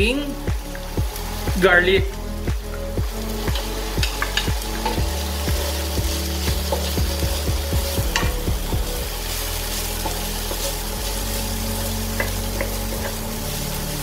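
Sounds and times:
onion and garlic sizzling in oil: 0:00.0 - 0:14.0.

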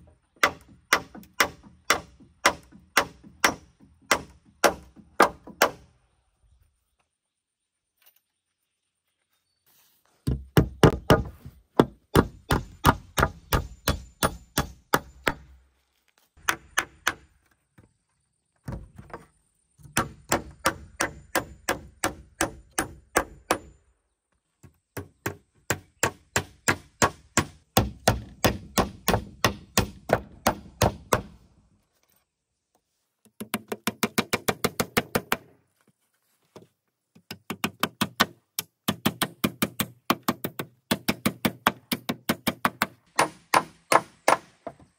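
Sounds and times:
hammer driving nails into wood: 0:37.2 - 0:44.8.

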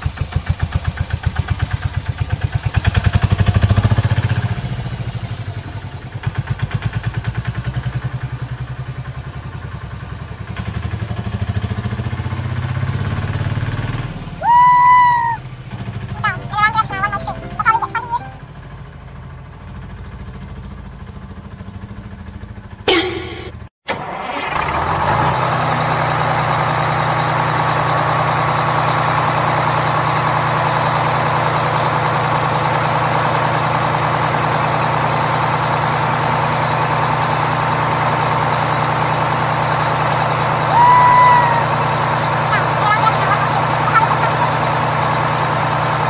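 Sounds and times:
truck engine idling: 0:00.0 - 0:46.0
low engine drone: 0:14.3 - 0:23.7, 0:40.7 - 0:45.6
sound gliding down in pitch: 0:16.2 - 0:18.6.

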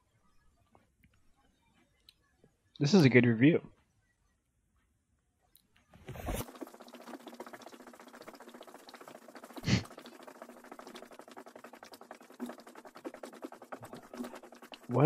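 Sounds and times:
fast pattering taps: 0:06.4 - 0:15.0.

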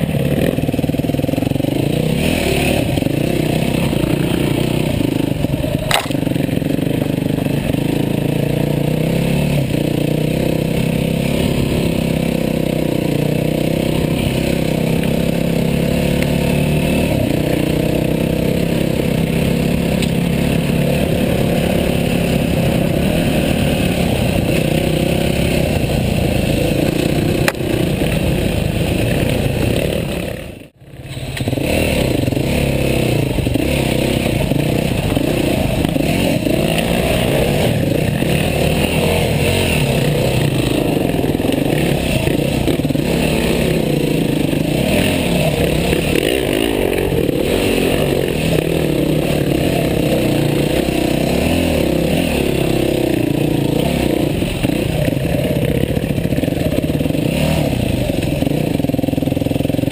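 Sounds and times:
dirt bike engine revving: 0:00.0 - 0:59.9
clatter and scraping on ground: 0:05.4 - 0:07.3, 0:19.9 - 0:21.0, 0:25.6 - 0:59.9.

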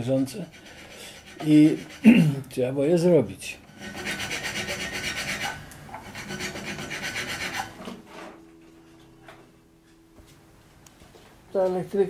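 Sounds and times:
hand file rasping: 0:00.0 - 0:02.5, 0:03.7 - 0:08.4.

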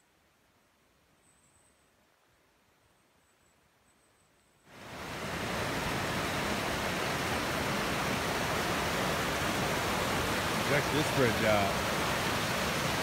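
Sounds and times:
creek rushing over rocks: 0:04.7 - 0:13.0.

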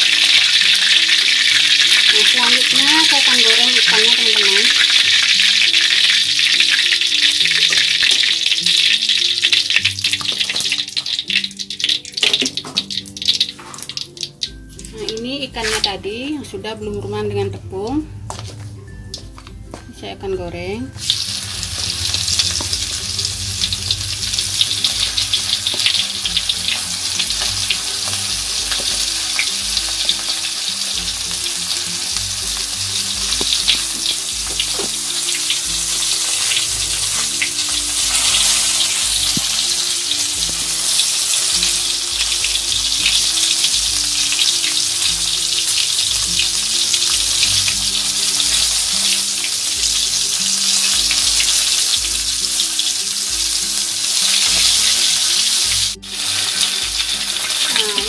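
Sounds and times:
fish deep-frying in oil: 0:00.0 - 0:16.0, 0:20.9 - 0:58.0.

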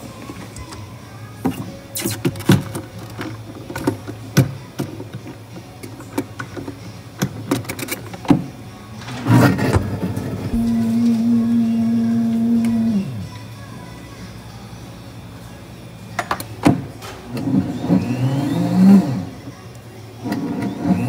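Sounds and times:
low steady hum: 0:10.2 - 0:14.9.

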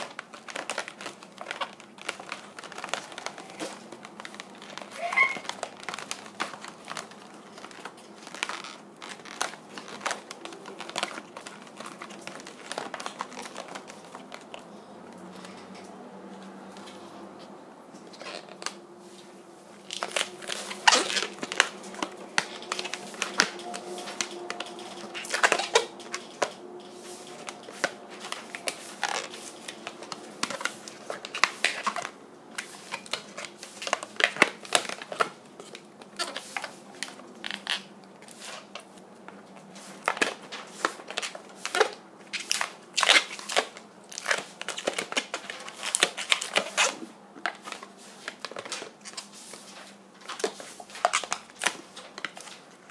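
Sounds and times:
balloon squeaking when twisted: 0:00.0 - 0:14.4, 0:18.1 - 0:18.8, 0:19.8 - 0:32.1, 0:36.2 - 0:36.7, 0:45.8 - 0:47.1.

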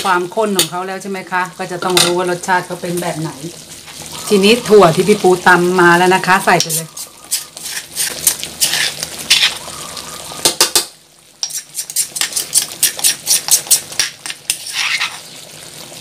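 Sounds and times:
metal spatula scraping a wok: 0:06.6 - 0:09.7, 0:11.4 - 0:15.3.

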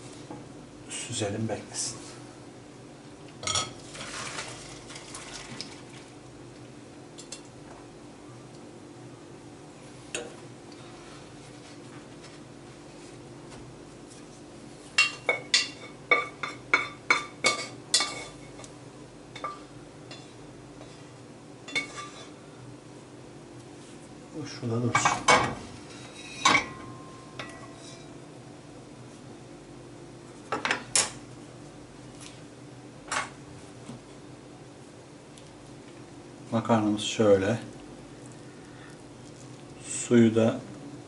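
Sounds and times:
steady low hum: 0:06.0 - 0:41.0
metal cookware clinking: 0:15.0 - 0:18.4, 0:26.2 - 0:28.2.

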